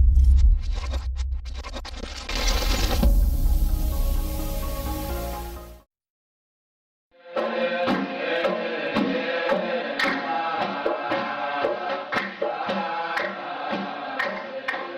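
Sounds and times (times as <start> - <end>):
soundtrack music with percussion beat: 7.3 - 14.9.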